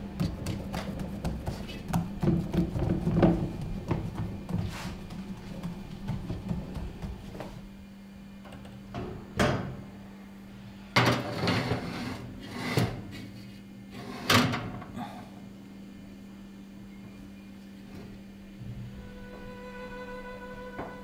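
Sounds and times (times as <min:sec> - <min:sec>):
low hum: 0:18.4 - 0:21.0.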